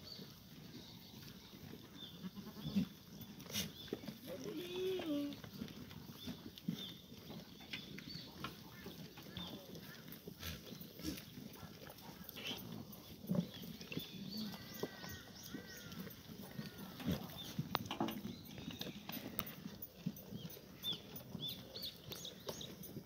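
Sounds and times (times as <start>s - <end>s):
faint goat calls: 3.5s - 5.4s.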